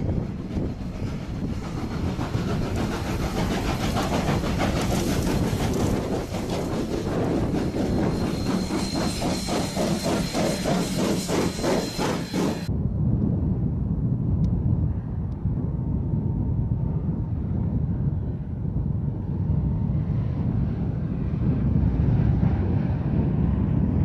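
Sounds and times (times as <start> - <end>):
train rumble: 0.0 - 13.6
wheels clacking over rails: 0.4 - 12.7
thin high whine: 5.7 - 12.7.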